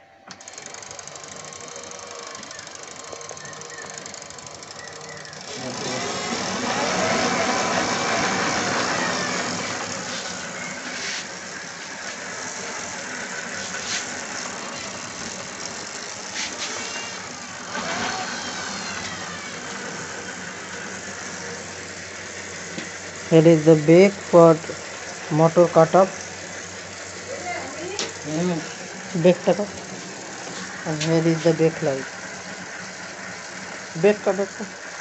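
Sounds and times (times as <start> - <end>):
electric motor whirring: 0.0 - 35.0.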